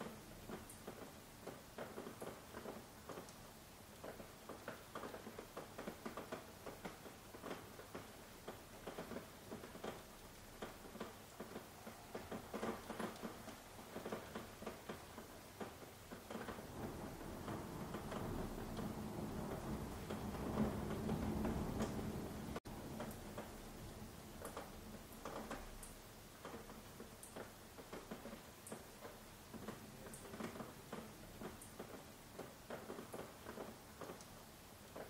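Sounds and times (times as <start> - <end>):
faint steady hiss: 0.0 - 35.0
raindrops pattering: 0.0 - 35.0
rushing rain: 0.0 - 35.0.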